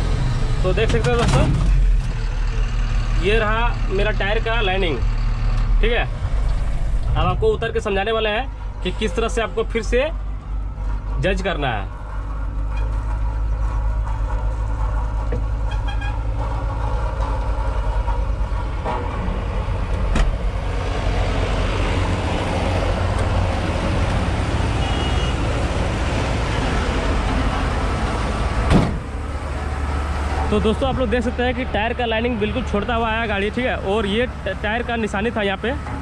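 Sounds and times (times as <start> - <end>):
diesel engine idling: 0.0 - 36.0.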